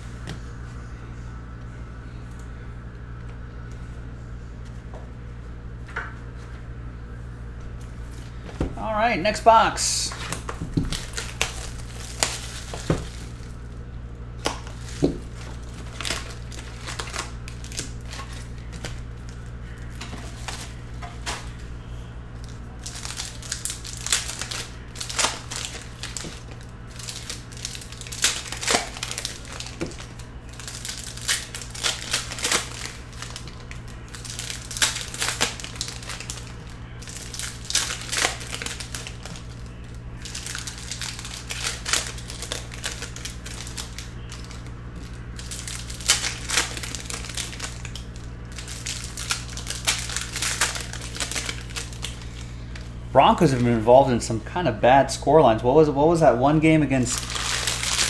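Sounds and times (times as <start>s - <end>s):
steady low hum: 0.0s - 58.0s
wrappers crinkling and tearing: 9.9s - 13.8s, 14.4s - 53.8s, 56.9s - 58.0s.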